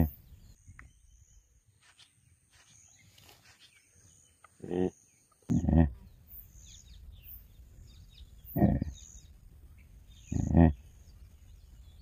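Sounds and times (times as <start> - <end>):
wild boar grunting: 4.6 - 6.1, 8.4 - 9.0, 10.2 - 10.9.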